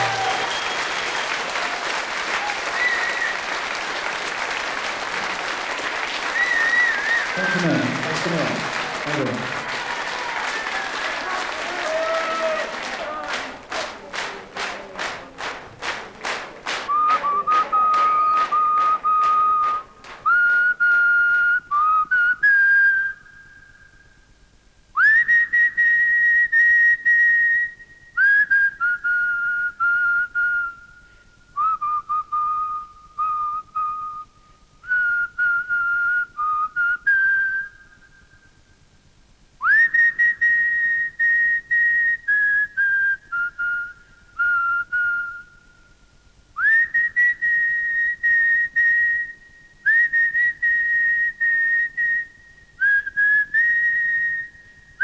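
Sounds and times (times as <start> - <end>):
person whistling a tune: 0.0 - 1.4, 2.7 - 3.6, 6.2 - 8.4, 16.8 - 24.0, 25.0 - 38.6, 39.6 - 45.9, 46.6 - 55.0.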